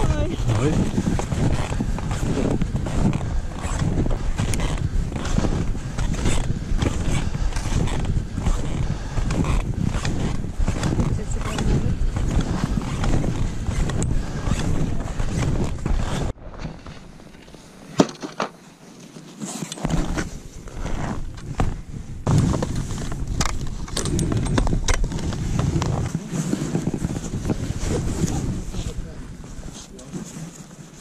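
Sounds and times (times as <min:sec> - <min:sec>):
wind rumbling on microphone: 0:00.0 - 0:17.4, 0:19.9 - 0:31.0
skis and poles on snow: 0:00.0 - 0:31.0.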